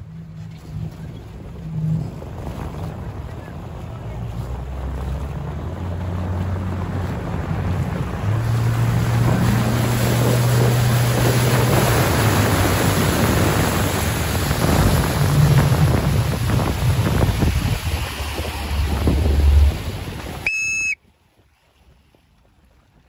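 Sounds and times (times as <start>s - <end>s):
wind on microphone: 0.0s - 20.9s
water splashing: 0.0s - 21.0s
motorboat engine humming: 0.0s - 23.0s.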